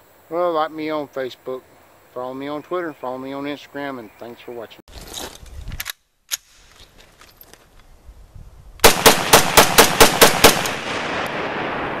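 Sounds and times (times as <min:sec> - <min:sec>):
gunshot echo: 0:08.8 - 0:12.0
rifle shots: 0:08.8 - 0:12.0.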